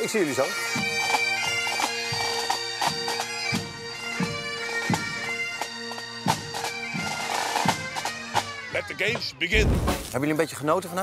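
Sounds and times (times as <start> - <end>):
bagpipes melody with drone: 0.0 - 9.5
drum strokes: 9.5 - 10.2.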